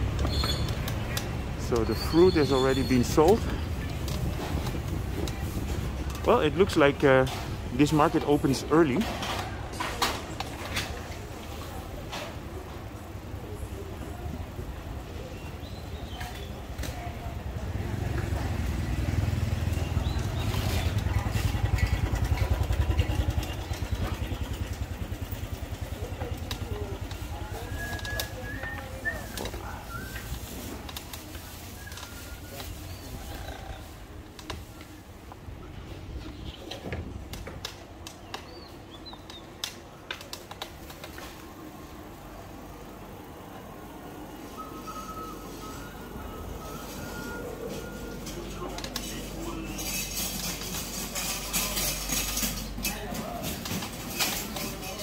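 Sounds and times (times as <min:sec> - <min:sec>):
motorcycle engine running: 0:17.3 - 0:28.5
clicks and clatter: 0:47.7 - 0:55.0.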